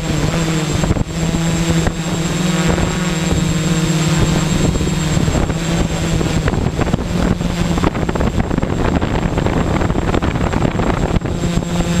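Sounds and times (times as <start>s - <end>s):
drone motors buzzing: 0.0s - 12.0s
faint high whine: 0.0s - 12.0s
wind noise on microphone: 0.0s - 12.0s.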